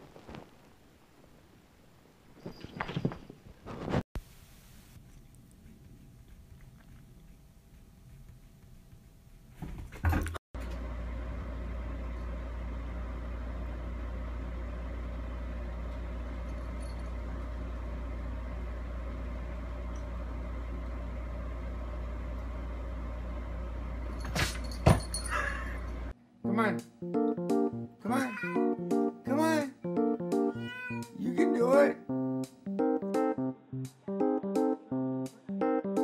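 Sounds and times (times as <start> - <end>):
low hum with hiss: 10.6 - 27.1.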